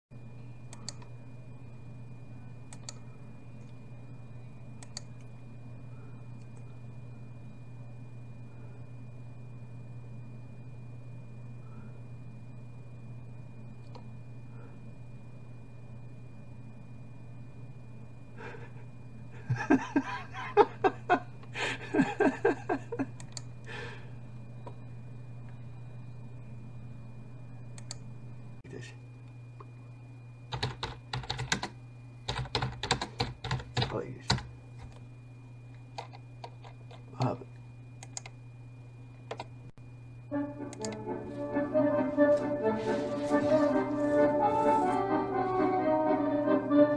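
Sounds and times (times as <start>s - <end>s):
steady low hum: 0.1s - 46.9s
computer mouse clicks: 0.7s - 1.1s, 2.7s - 3.0s, 4.8s - 5.3s, 23.2s - 23.5s, 27.8s - 28.0s, 38.0s - 38.4s, 39.3s - 39.5s, 40.7s - 41.0s
man laughing: 18.4s - 23.2s.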